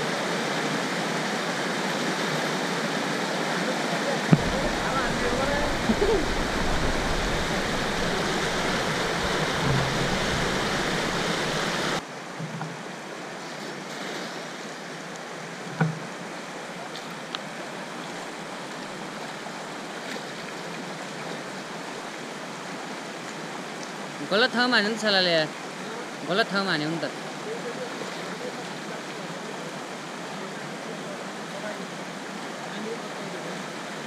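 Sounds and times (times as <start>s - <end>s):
river rushing over stones: 0.0s - 34.0s
short thump: 4.3s - 11.6s.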